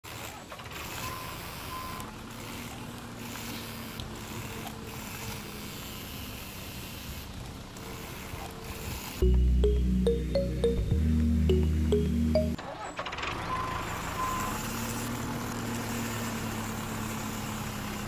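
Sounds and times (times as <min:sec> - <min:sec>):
small motor whirring: 0:00.1 - 0:09.2.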